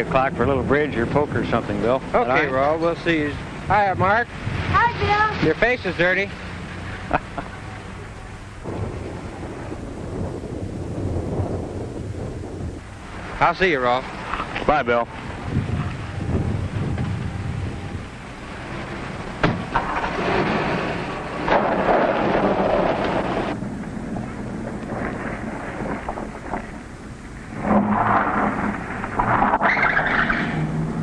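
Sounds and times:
car engine and road rumble: 0.0 - 31.0.

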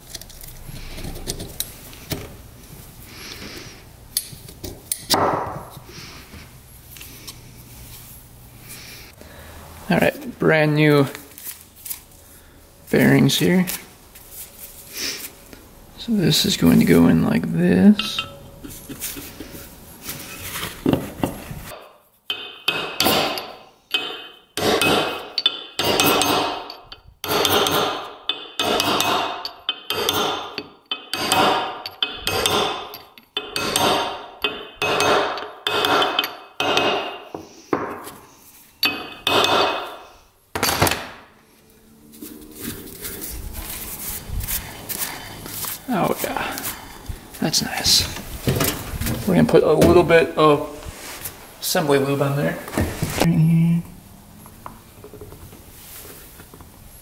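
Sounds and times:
hammer striking metal: 22.3 - 37.9, 38.8 - 40.0.

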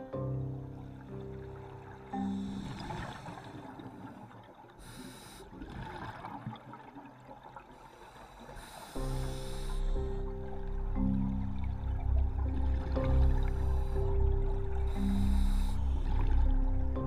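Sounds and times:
background music: 0.0 - 4.2, 8.8 - 17.0
regulator breath hiss: 4.8 - 5.6, 8.0 - 10.0.

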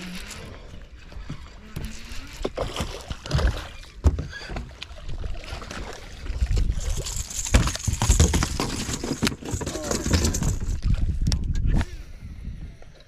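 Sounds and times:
water splashing: 0.0 - 9.0.

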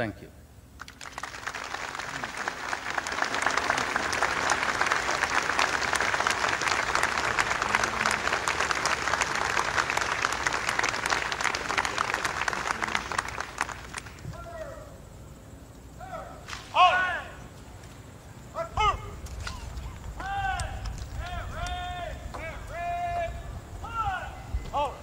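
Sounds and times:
audience applauding: 0.8 - 14.6.

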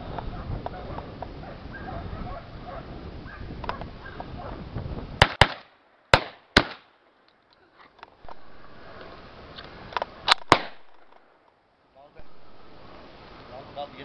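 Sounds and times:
shotgun shots: 5.2 - 6.9, 10.3 - 11.1.

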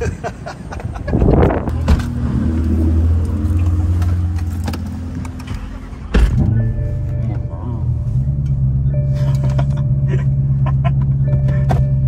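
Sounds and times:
car engine starting and idling: 1.0 - 12.0
sharp thump: 1.8 - 2.1.

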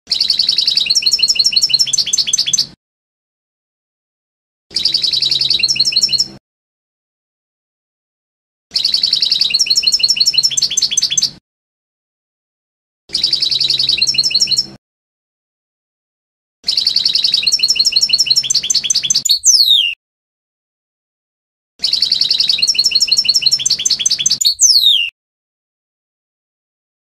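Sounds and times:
goldfinch song: 0.1 - 2.7, 4.7 - 6.4, 8.7 - 11.4, 13.1 - 14.8, 16.7 - 20.0, 21.8 - 25.1
falling whistle: 19.3 - 20.0, 24.4 - 25.1.

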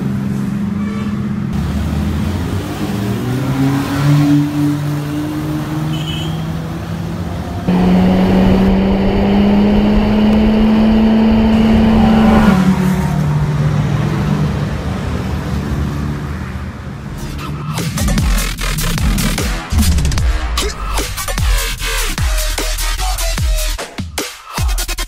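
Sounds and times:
car exhaust drone: 7.6 - 15.3.

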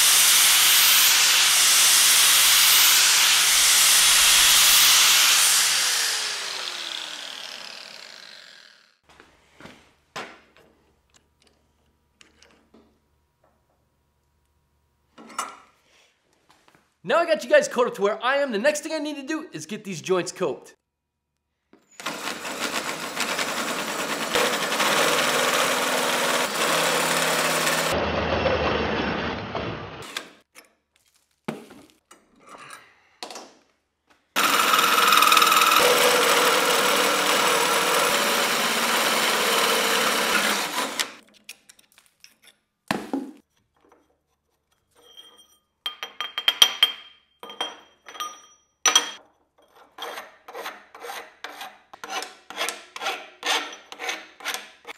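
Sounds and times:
drill hole saw cutting steel: 0.0 - 9.0, 22.0 - 29.0, 34.4 - 41.2
file scraping metal: 49.6 - 54.9.

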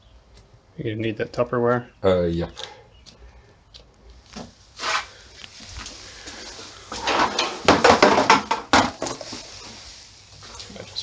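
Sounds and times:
knocks: 7.0 - 9.2.

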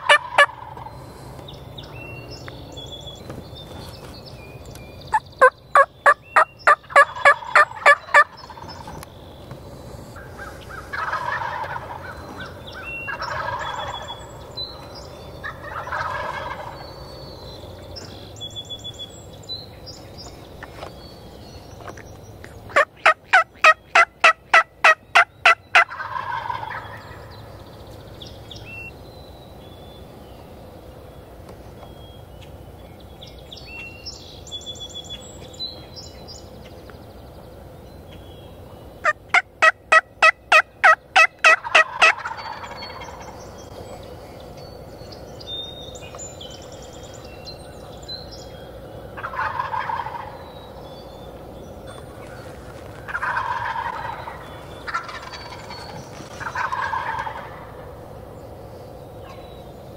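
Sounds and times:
turkey gobbles: 0.0 - 0.9, 5.1 - 9.0, 10.0 - 14.2, 15.4 - 16.8, 21.8 - 27.2, 39.0 - 43.4, 49.2 - 50.4, 52.0 - 57.8
turkey yelps: 0.0 - 0.9, 5.4 - 8.6, 10.2 - 14.2, 15.4 - 16.8, 22.7 - 27.1, 39.0 - 43.3, 49.2 - 50.4, 52.2 - 57.8
faint songbird chirps: 0.0 - 59.9.

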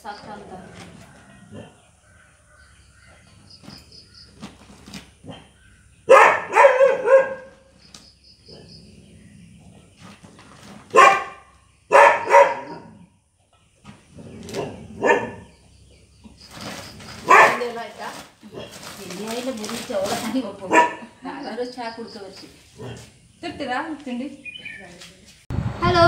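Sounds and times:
dog barking: 6.1 - 7.7, 10.9 - 12.9, 14.6 - 15.5, 17.2 - 17.8, 20.6 - 21.2.

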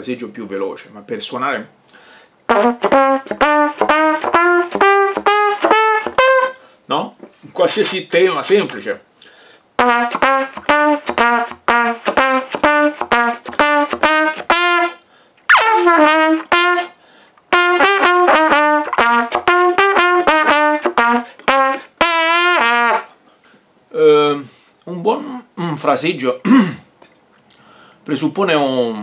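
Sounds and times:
solo trumpet melody: 2.5 - 6.7, 9.8 - 23.2.

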